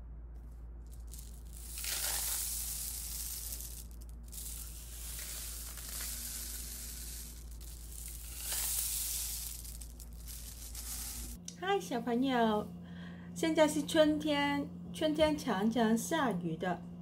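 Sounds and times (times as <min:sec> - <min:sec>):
rain stick rice trickling: 0:00.8 - 0:11.4.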